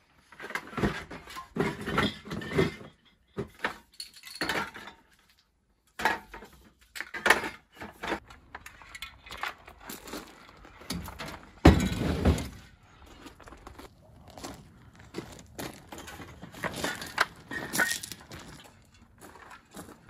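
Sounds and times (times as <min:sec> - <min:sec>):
crate thump and rattle: 0:10.9 - 0:12.7
metal cans clinking: 0:15.8 - 0:19.1.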